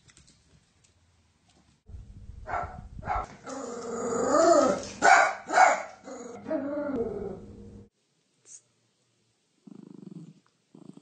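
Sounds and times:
dog barking: 0:02.4 - 0:03.3, 0:05.0 - 0:06.0
dog growling: 0:03.4 - 0:04.9, 0:06.0 - 0:07.5, 0:09.6 - 0:11.0.

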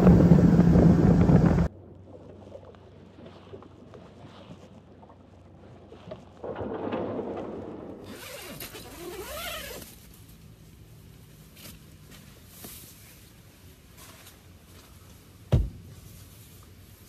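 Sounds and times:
rush of noise: 0:00.0 - 0:01.7
low hum: 0:00.0 - 0:09.1
tent zipper opening: 0:08.1 - 0:10.0.

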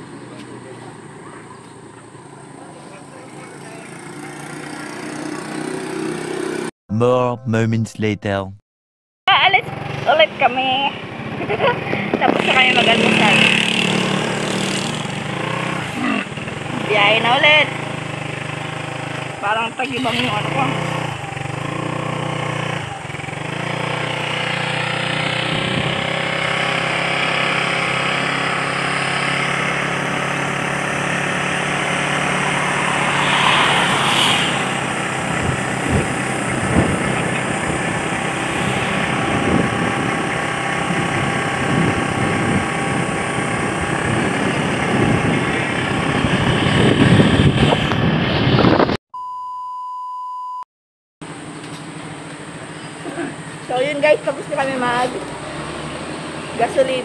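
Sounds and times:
motorcycle engine running: 0:00.2 - 0:06.7, 0:09.4 - 0:48.1
wind noise on microphone: 0:34.7 - 0:49.0.

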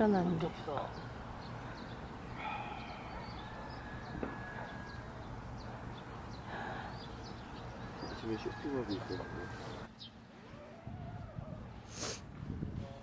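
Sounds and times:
low background noise: 0:00.0 - 0:13.0
distant call: 0:01.0 - 0:09.9.

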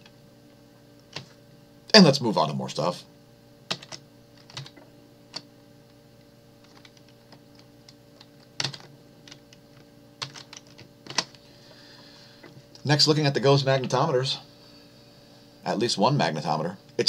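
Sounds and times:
faint steady hum: 0:00.0 - 0:17.0
computer keyboard clicks: 0:03.7 - 0:05.4, 0:06.6 - 0:07.6, 0:08.6 - 0:09.5, 0:10.2 - 0:11.4.

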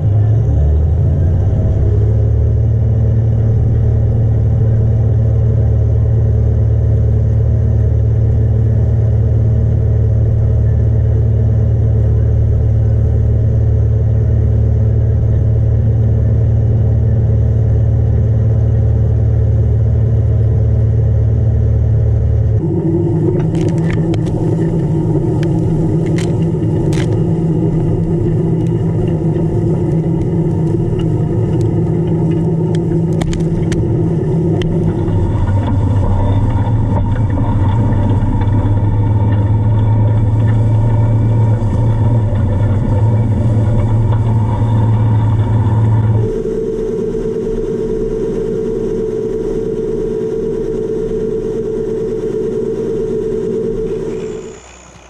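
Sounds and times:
tractor diesel engine running: 0:00.0 - 0:55.0
sharp clicks and knocks: 0:23.3 - 0:46.3.

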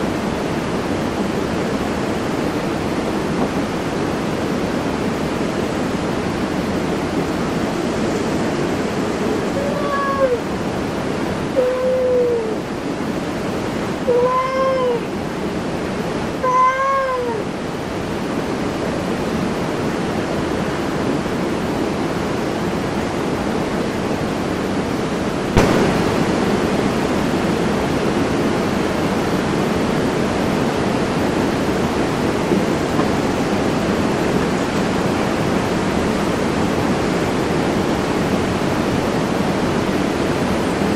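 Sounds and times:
cat meowing: 0:09.5 - 0:10.4, 0:11.6 - 0:12.6, 0:14.0 - 0:15.1, 0:16.4 - 0:17.5
steady hiss: 0:25.4 - 0:29.1.

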